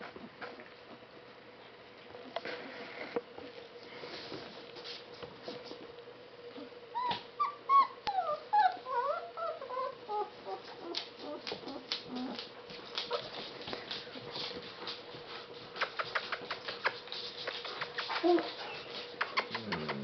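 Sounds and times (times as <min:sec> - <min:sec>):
puppy whimpering: 0:06.6 - 0:12.5
paws clicking on wooden floor: 0:10.4 - 0:20.0.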